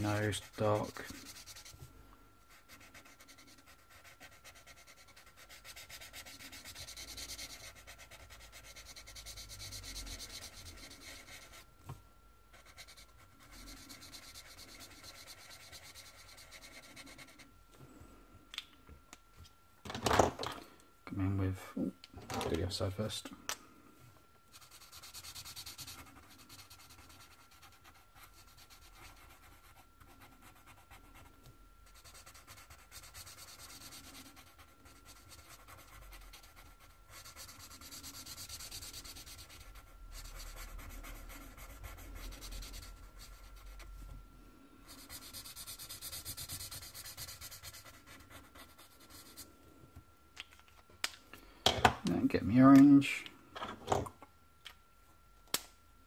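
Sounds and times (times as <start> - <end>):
marker scratching on paper: 2.6 - 11.7, 12.5 - 17.4, 31.8 - 43.8, 44.9 - 49.4.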